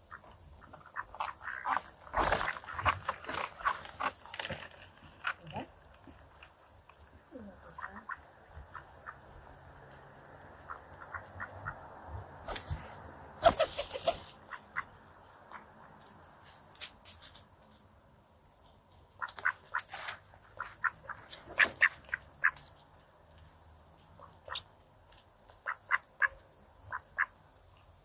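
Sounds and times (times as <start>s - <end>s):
ducks pecking: 0.0s - 17.6s, 18.4s - 27.4s
ducks quacking: 7.6s - 9.2s, 10.6s - 11.9s, 19.2s - 22.6s, 25.6s - 27.4s.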